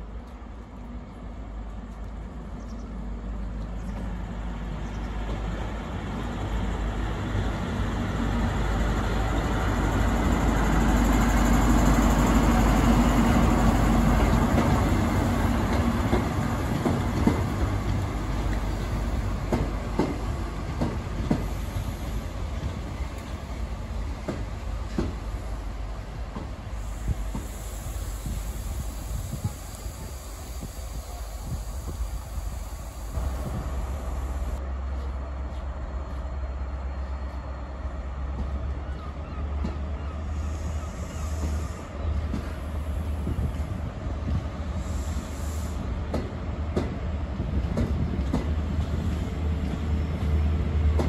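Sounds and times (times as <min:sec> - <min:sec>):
diesel train passing: 0:00.0 - 0:51.0
train wheels clicking over rail joints: 0:09.9 - 0:23.5, 0:24.1 - 0:25.5, 0:26.1 - 0:32.3, 0:42.2 - 0:51.0.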